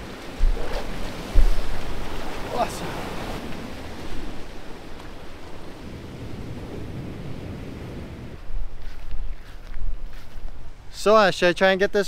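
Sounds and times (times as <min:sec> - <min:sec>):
ocean surf surging over rocks: 0:00.0 - 0:08.4
wind rumbling on microphone: 0:00.0 - 0:11.0.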